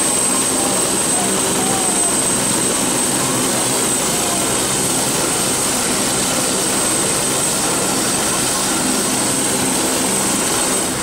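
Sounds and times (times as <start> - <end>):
turbine aircraft engine roaring: 0.0 - 11.0.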